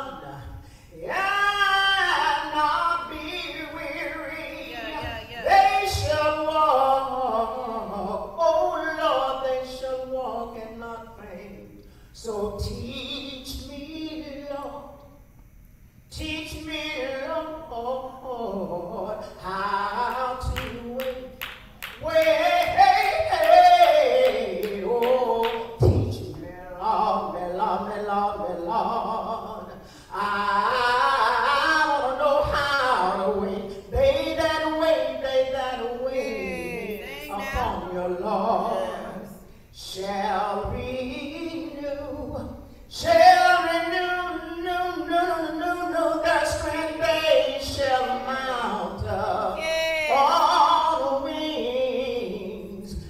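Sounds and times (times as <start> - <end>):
woman singing gospel: 0.0 - 11.4, 21.8 - 52.7.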